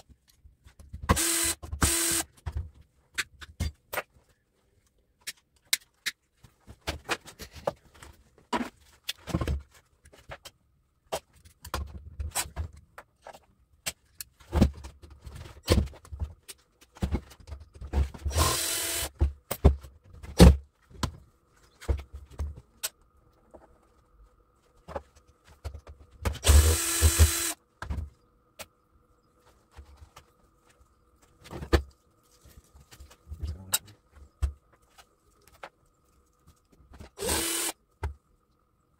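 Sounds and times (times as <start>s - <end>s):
cordless drill running: 1.1s - 2.3s, 18.3s - 19.1s, 26.4s - 27.6s, 37.2s - 37.8s.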